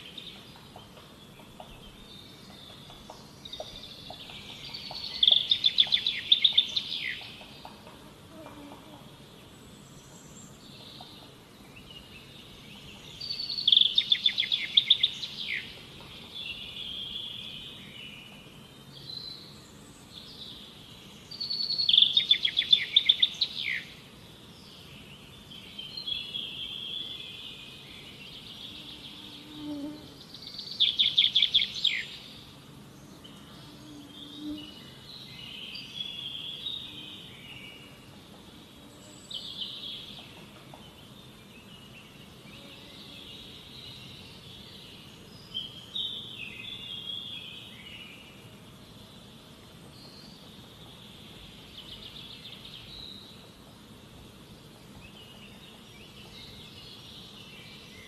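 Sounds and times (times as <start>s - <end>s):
bird chirps and warbles: 0.0s - 58.0s.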